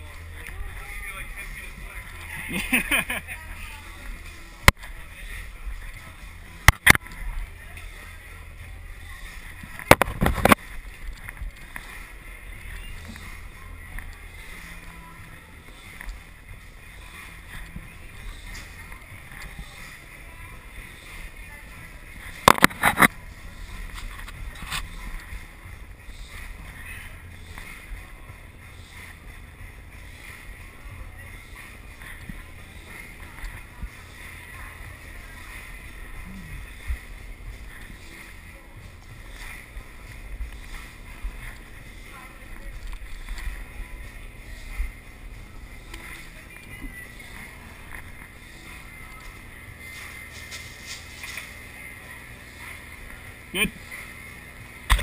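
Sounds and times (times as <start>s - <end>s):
steady low hum: 0.0s - 55.0s
camera handling rumble: 9.7s - 11.4s, 22.5s - 23.1s.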